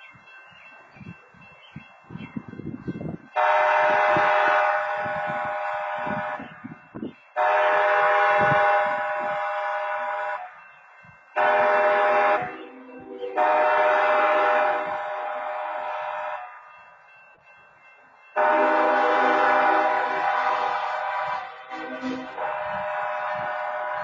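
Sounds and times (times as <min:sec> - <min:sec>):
locomotive air horn blasts: 0:03.4 - 0:06.5, 0:07.4 - 0:10.5, 0:11.4 - 0:16.6, 0:18.4 - 0:24.0.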